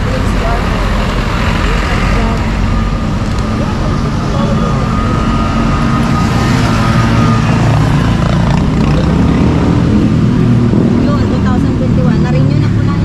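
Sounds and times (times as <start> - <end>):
street traffic: 0.0 - 13.0
vehicle engine running: 0.0 - 13.0.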